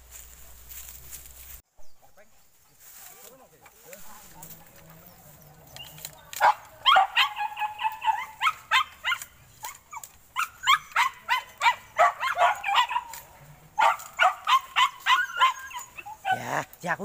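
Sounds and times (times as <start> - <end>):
dogs barking and yelping: 4.9 - 16.8.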